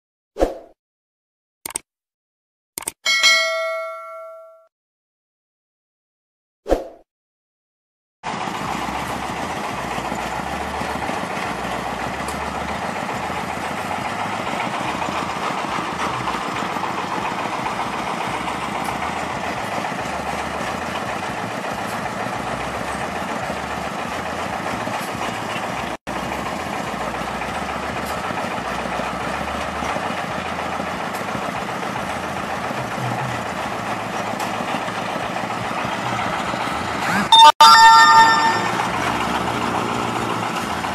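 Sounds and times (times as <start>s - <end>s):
engine running with rattle: 8.2s - 37.3s, 38.4s - 40.9s.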